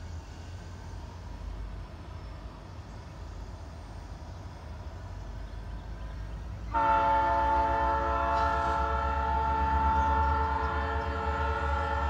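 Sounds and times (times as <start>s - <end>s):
train rumbling: 0.0s - 12.0s
locomotive air horn chord: 6.7s - 12.0s.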